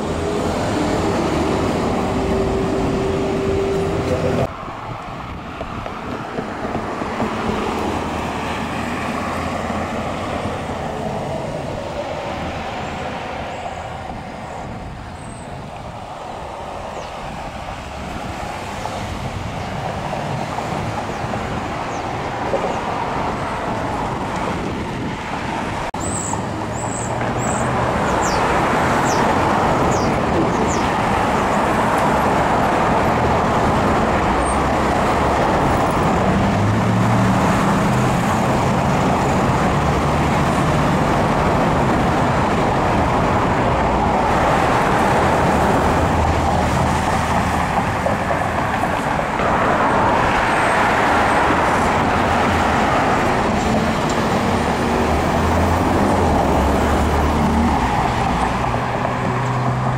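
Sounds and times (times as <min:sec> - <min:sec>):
road traffic passing: 0:00.0 - 0:59.9.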